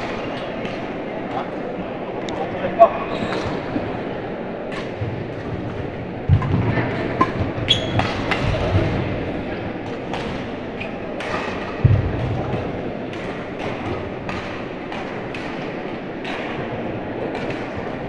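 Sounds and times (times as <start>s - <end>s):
racket hitting shuttlecock: 4.7s - 18.0s
shoe squeak: 7.7s - 8.1s.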